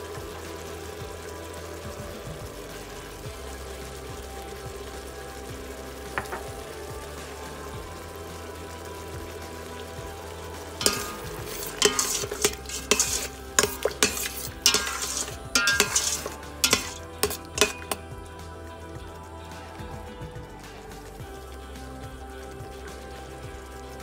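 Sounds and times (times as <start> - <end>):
sauce sizzling in pot: 0.0 - 24.0
utensil scraping metal pot: 10.8 - 18.1.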